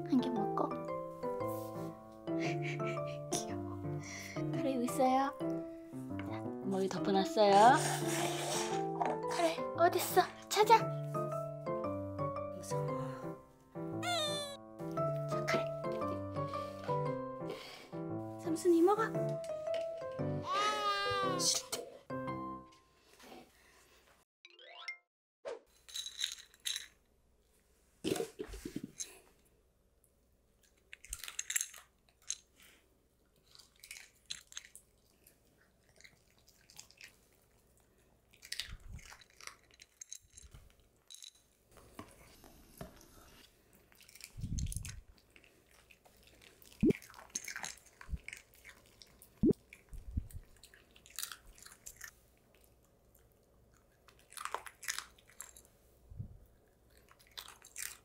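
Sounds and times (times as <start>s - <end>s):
dogs crunching treats: 30.6s - 41.6s, 43.6s - 55.8s, 56.5s - 58.0s.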